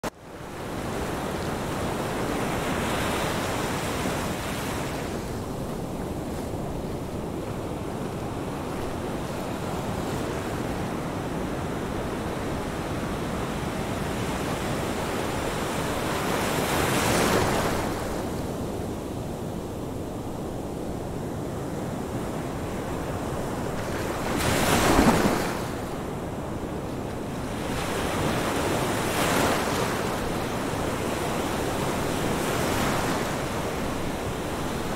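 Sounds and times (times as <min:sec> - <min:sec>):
ocean waves breaking: 0:22.6 - 0:34.9.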